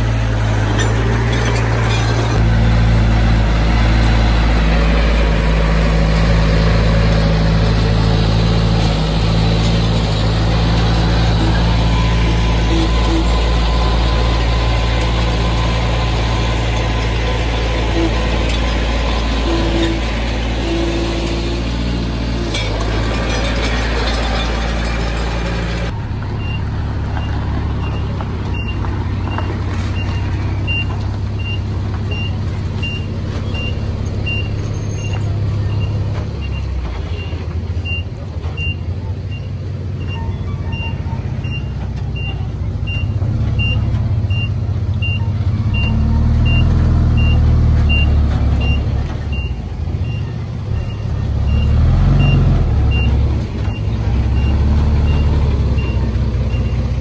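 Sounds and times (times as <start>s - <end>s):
diesel engine rumble: 0.0s - 57.0s
truck backup alarm beeping: 10.2s - 21.8s, 23.4s - 57.0s.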